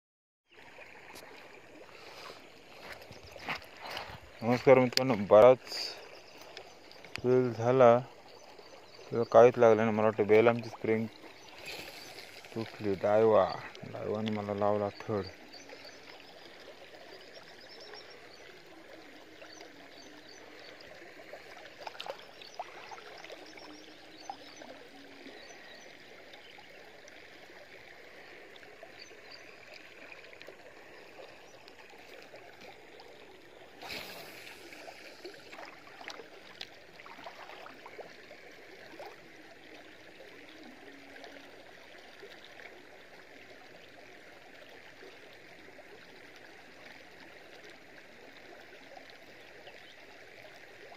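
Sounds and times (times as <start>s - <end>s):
water trickling: 0.5s - 50.9s
faint clicks: 6.3s - 7.3s.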